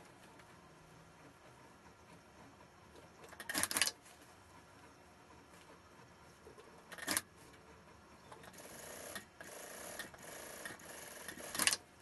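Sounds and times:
sewing machine stitching: 0:08.4 - 0:11.8.

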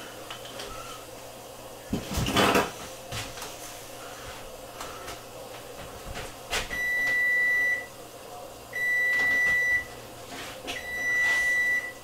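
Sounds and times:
appliance timer beeping: 0:06.7 - 0:08.0, 0:08.7 - 0:10.0, 0:10.8 - 0:12.0.

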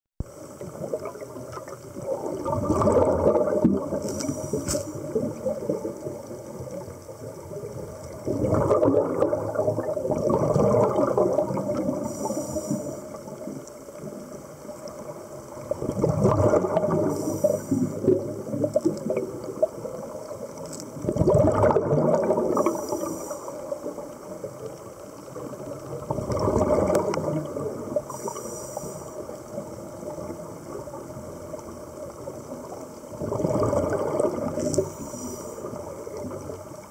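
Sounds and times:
underwater air bubbles gurgling: 0:00.2 - 0:36.9
faint high hiss: 0:03.7 - 0:08.3, 0:10.9 - 0:15.8, 0:16.8 - 0:21.0, 0:22.3 - 0:26.1, 0:26.8 - 0:33.2, 0:34.3 - 0:36.9.

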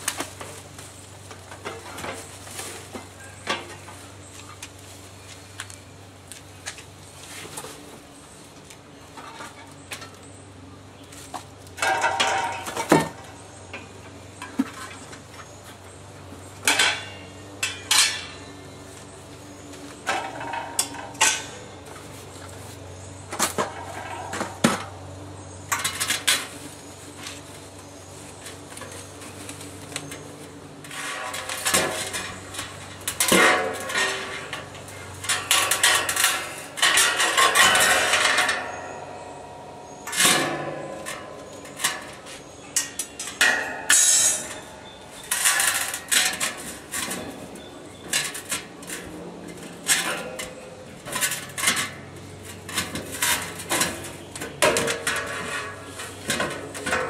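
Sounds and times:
rattling and rustling: 0:00.0 - 0:05.6, 0:11.1 - 0:57.0
metal parts clanking in steel barrel: 0:11.8 - 0:15.9, 0:16.5 - 0:18.9, 0:19.5 - 0:57.0.

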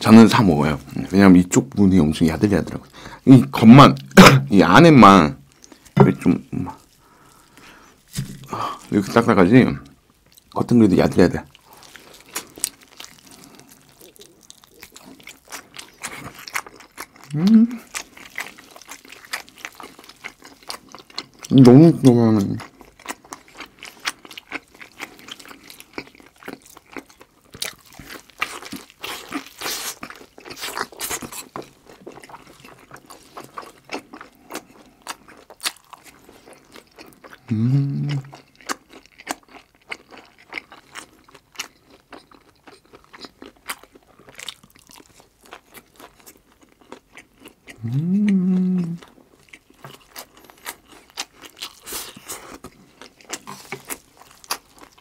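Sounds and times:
person chewing: 0:02.6 - 0:10.6, 0:11.5 - 0:55.0
person humming: 0:17.3 - 0:17.8, 0:37.5 - 0:38.3, 0:47.8 - 0:49.1.

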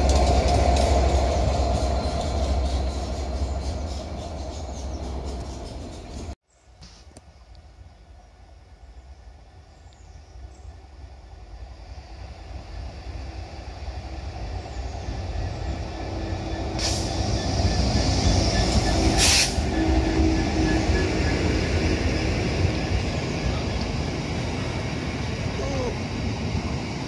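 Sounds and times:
diesel locomotive engine: 0:00.0 - 0:06.4, 0:07.8 - 0:27.0
freight wagons rumbling: 0:00.0 - 0:06.4, 0:13.2 - 0:27.0
short sharp hisses: 0:19.2 - 0:19.6.

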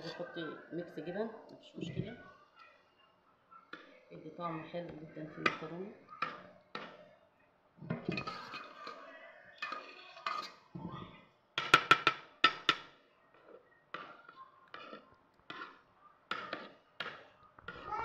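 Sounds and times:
spoon spreading sauce in pan: 0:07.9 - 0:10.8, 0:11.6 - 0:17.9
spoon knocking against metal pan: 0:11.6 - 0:12.9.

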